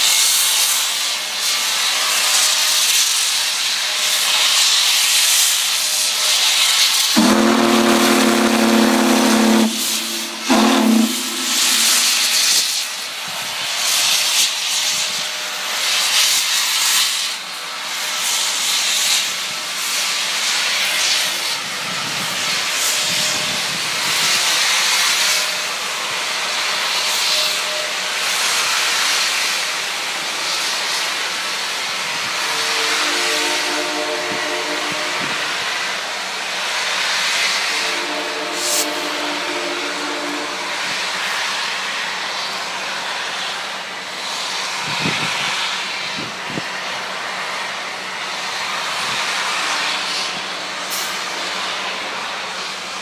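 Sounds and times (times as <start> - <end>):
steam exhaust chuffs and hiss: 0.0 - 53.0
steam locomotive whistle: 4.6 - 12.8, 32.2 - 36.0, 37.4 - 42.0.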